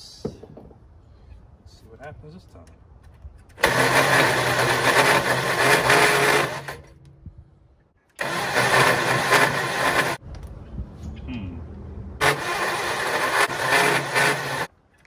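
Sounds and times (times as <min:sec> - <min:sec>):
engine cranked by starter: 0:03.6 - 0:07.0, 0:08.2 - 0:10.2, 0:12.2 - 0:14.7.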